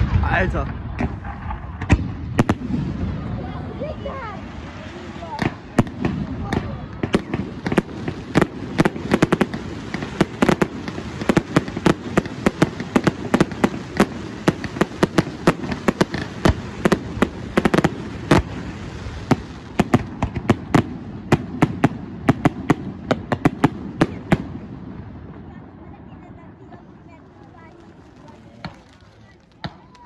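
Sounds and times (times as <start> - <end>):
firework crackle: 0.0 - 30.0
firework shells bursting: 5.4 - 23.7, 27.5 - 30.0.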